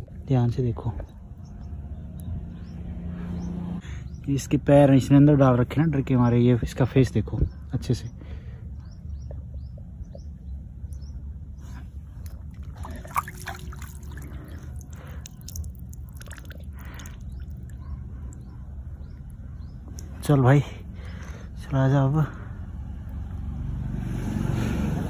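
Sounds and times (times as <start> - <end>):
bird chirps: 7.3 - 12.4, 13.6 - 21.4.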